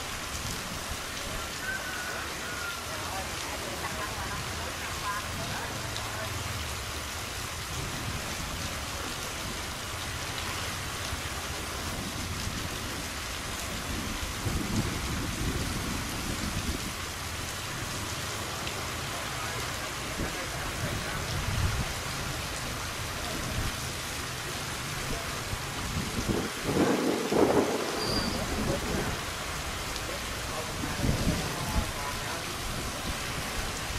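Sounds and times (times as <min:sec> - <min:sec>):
river water rushing: 0:00.0 - 0:07.7, 0:17.0 - 0:33.9.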